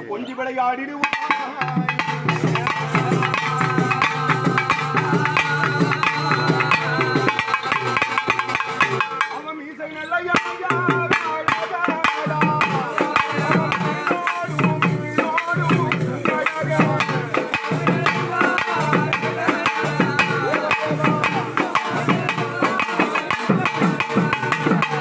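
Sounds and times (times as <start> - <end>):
double drum beaten with sticks: 1.0 - 9.4, 10.3 - 25.0
wavering high tone: 2.4 - 9.0.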